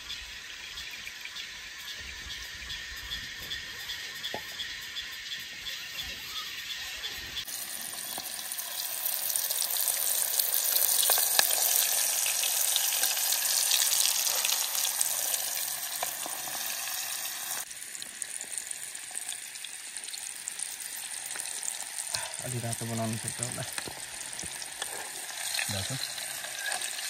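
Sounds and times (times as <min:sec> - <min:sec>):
food sizzling over campfire: 0:00.0 - 0:27.0
wood fire crackles: 0:07.4 - 0:27.0.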